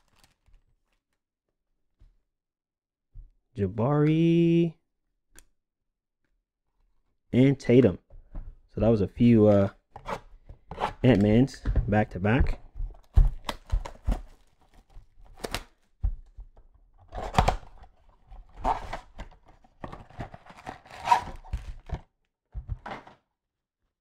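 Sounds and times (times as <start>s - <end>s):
wrappers rustling and tearing: 0.0s - 1.1s.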